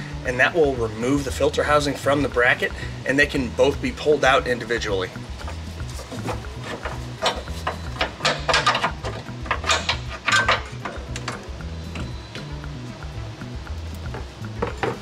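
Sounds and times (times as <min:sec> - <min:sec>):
background music with steady beat: 0:00.0 - 0:15.0
metal parts clinking and rattling: 0:05.4 - 0:12.1.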